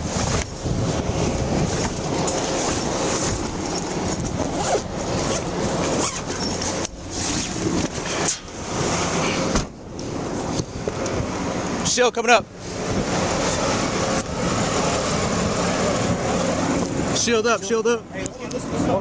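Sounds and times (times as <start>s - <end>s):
fabric bags rustling: 0.0s - 8.4s.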